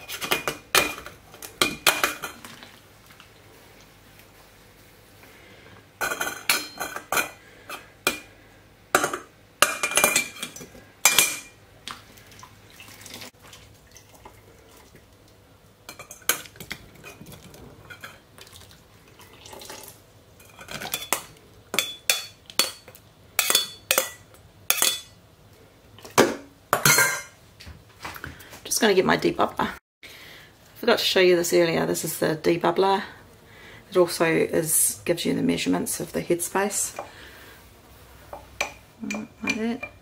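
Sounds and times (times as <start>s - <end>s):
metal spoon clinking on metal: 20.5s - 25.1s.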